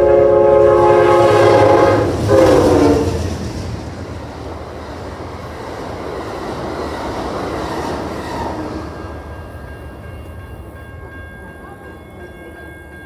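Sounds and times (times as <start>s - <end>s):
train cars rumbling on rails: 0.0s - 13.0s
crossing bell ringing: 8.2s - 13.0s.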